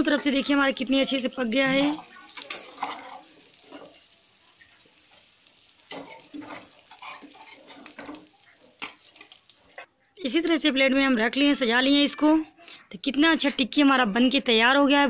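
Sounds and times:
spatula scraping a pan: 0:00.0 - 0:04.2, 0:04.9 - 0:09.9
food sizzling in oil: 0:00.0 - 0:10.0.

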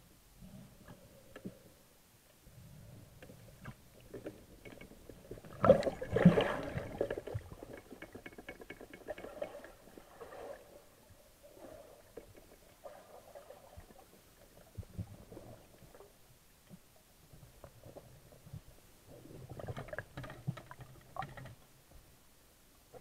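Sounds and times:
water churning and splashing: 0:05.4 - 0:10.9.

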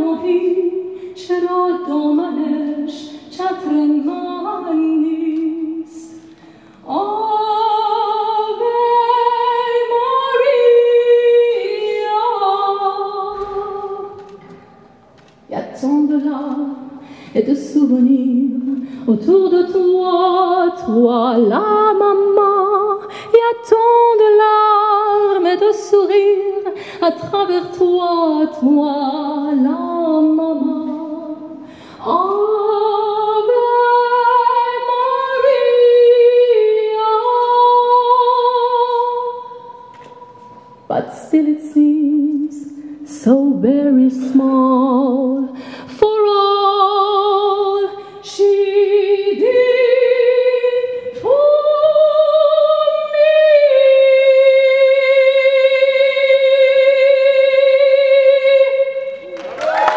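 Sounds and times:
woman singing with vibrato: 0:00.0 - 0:59.9.

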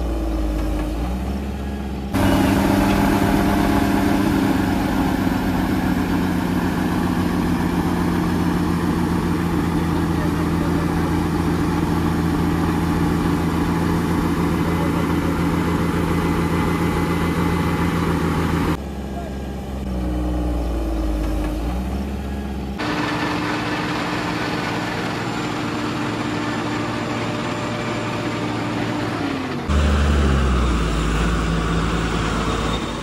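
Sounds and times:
diesel engine running: 0:00.0 - 0:33.0
quieter engine sound: 0:00.0 - 0:33.0.

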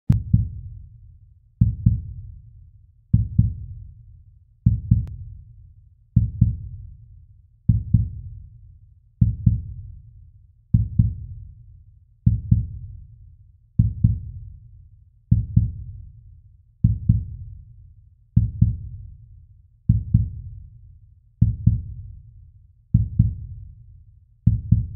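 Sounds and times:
heartbeat double thump: 0:03.2 - 0:03.6.

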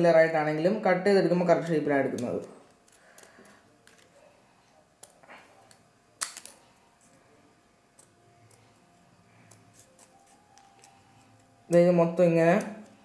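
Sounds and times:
scissors snipping paper: 0:02.1 - 0:04.2, 0:09.4 - 0:13.0.

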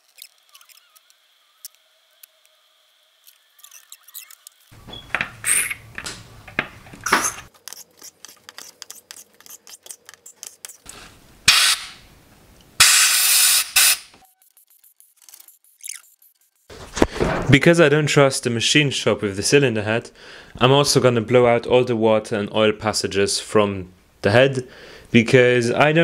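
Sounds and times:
small brush scrubbing: 0:07.6 - 0:10.9, 0:14.2 - 0:16.7
compressed air hissing blast: 0:11.5 - 0:12.0, 0:12.8 - 0:14.1.

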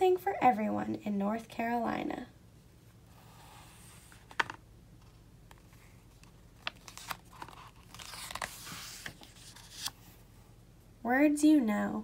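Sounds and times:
page turning rustle: 0:05.5 - 0:10.0.

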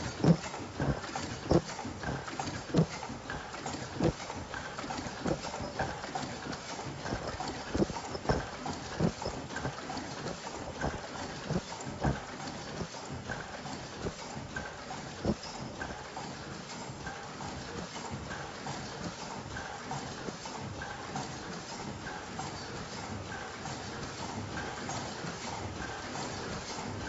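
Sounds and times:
steady machine noise: 0:00.0 - 0:16.4
sharp mechanical clacks: 0:00.0 - 0:21.3.

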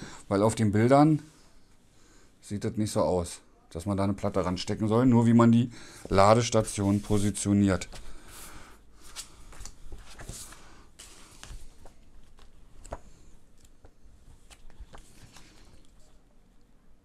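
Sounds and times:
paper pages turning: 0:06.1 - 0:08.4, 0:09.0 - 0:16.2.

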